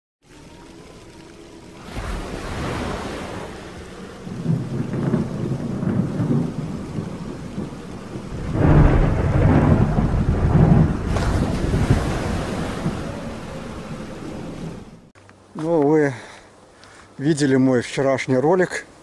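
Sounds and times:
rain: 0.2s - 19.0s
rolling thunder: 1.9s - 15.1s.

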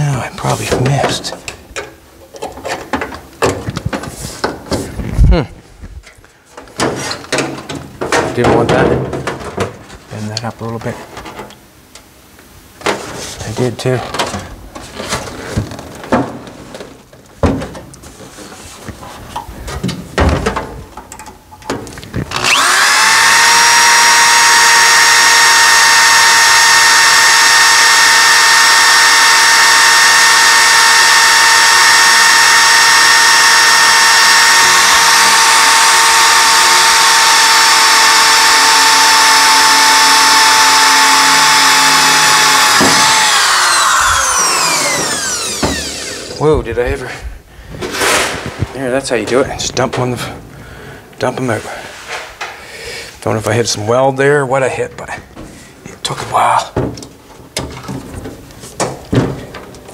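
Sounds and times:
electric drill whining: 22.2s - 46.5s.

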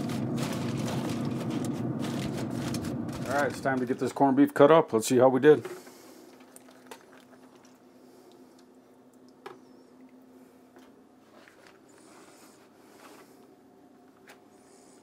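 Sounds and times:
faint steady hum: 0.0s - 15.0s.

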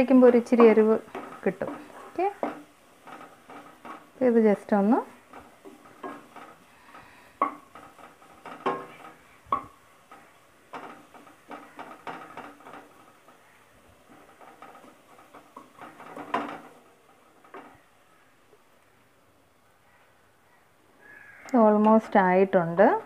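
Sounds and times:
wooden spatula scraping metal pan: 0.0s - 17.9s.

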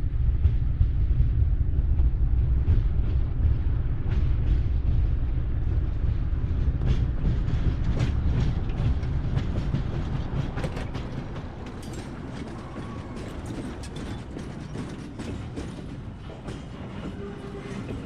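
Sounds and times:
freight train wagons rumbling: 0.0s - 18.0s
metallic clanks and creaks: 10.4s - 18.0s.

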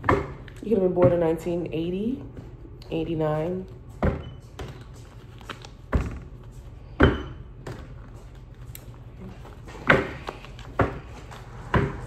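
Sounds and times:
cards being shuffled: 4.6s - 6.8s, 7.7s - 12.0s.

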